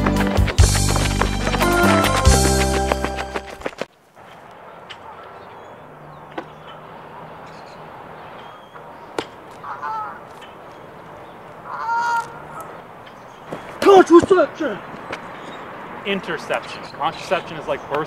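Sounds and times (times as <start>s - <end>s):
goose honking: 9.6s - 10.4s, 11.6s - 12.8s.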